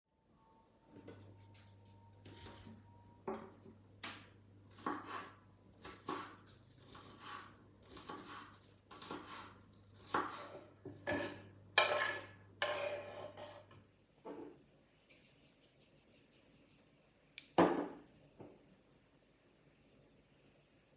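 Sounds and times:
knife chopping on wooden board: 4.0 - 12.9.

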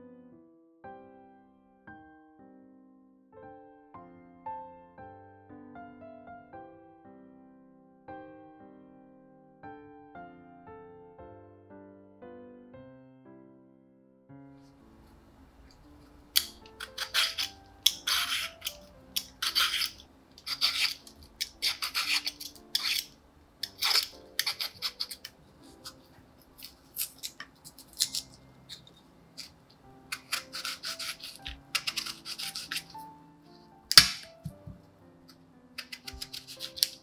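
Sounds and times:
soft background music: 0.0 - 37.0
scraping food preparation strokes: 16.4 - 33.7, 35.8 - 37.0.

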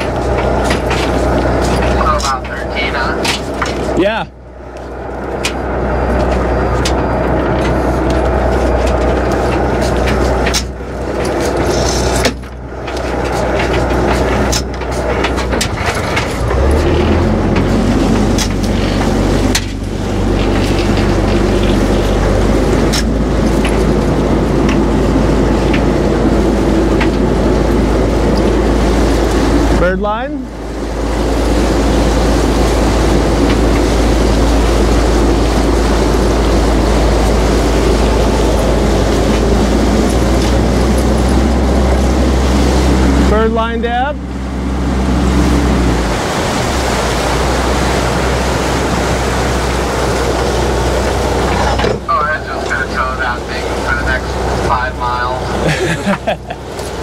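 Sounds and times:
boat engine droning: 0.0 - 57.0
rushing noise: 0.0 - 57.0.

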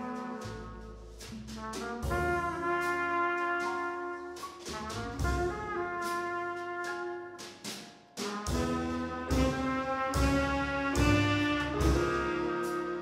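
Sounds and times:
trumpets and saxophone chords: 0.0 - 1.0, 8.2 - 13.0
drum kit cymbals: 0.0 - 13.0.

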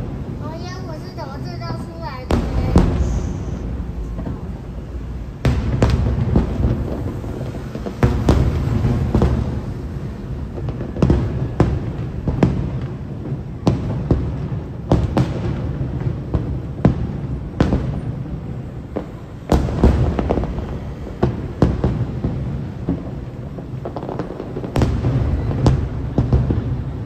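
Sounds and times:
low rumble: 2.3 - 7.3.

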